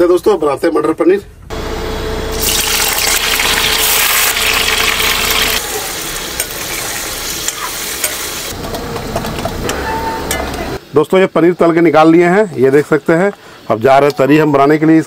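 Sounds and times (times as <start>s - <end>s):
cubes sizzling in hot oil: 2.4s - 8.6s.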